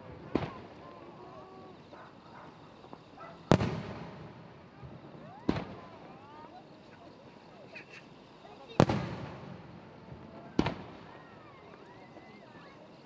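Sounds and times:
firework shells booming: 0:00.0 - 0:01.2, 0:01.8 - 0:06.2, 0:08.7 - 0:11.8.

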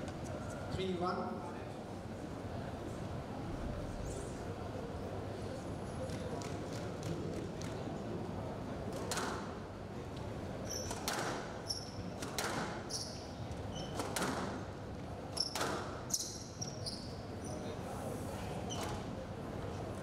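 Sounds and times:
shoes squeaking on court floor: 0:10.6 - 0:12.1, 0:12.9 - 0:14.3, 0:15.3 - 0:17.8
squash ball hitting rackets and walls: 0:10.8 - 0:11.5, 0:12.2 - 0:12.9, 0:13.9 - 0:14.6, 0:15.4 - 0:16.0.

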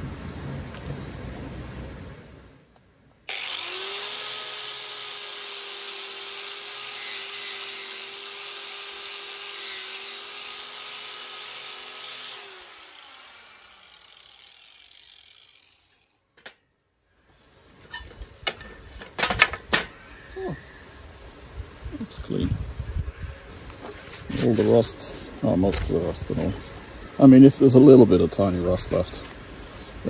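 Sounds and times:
wire brush grinder on steel: 0:03.3 - 0:16.2.

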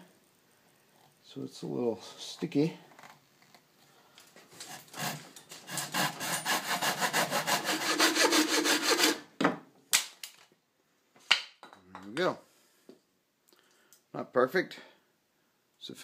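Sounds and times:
coping saw cutting wood: 0:04.6 - 0:09.2.

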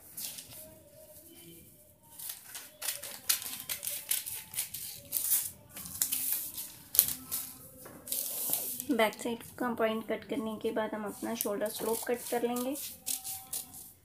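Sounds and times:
scissors snipping paper: 0:02.2 - 0:08.9, 0:11.4 - 0:13.9.

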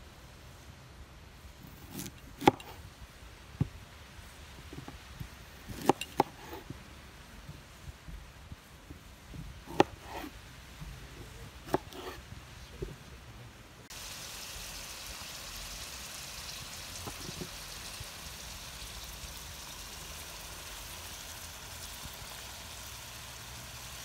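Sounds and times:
knife cutting onto wooden board: 0:01.7 - 0:02.8, 0:05.7 - 0:06.6, 0:09.7 - 0:10.3, 0:11.7 - 0:12.2.

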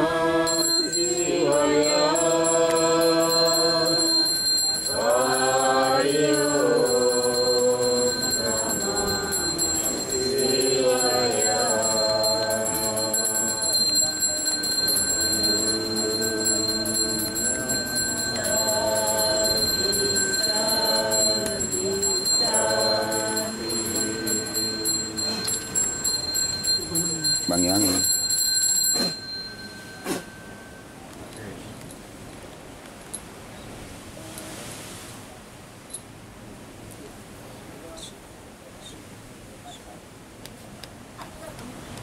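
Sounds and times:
voices chanting long notes: 0:00.0 - 0:14.5, 0:15.2 - 0:27.9
hand bell ringing: 0:00.5 - 0:31.1.

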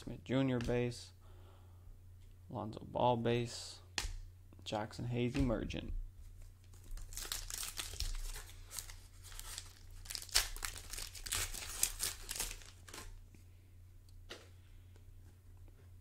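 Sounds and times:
foil wrapper crinkling and tearing: 0:06.7 - 0:13.2.

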